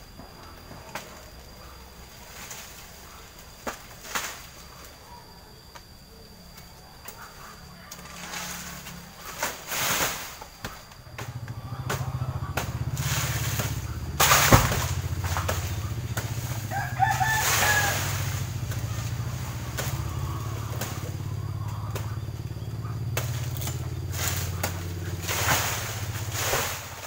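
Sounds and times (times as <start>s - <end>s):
low engine-like hum: 0.0s - 27.0s
rooster crowing: 15.0s - 23.1s.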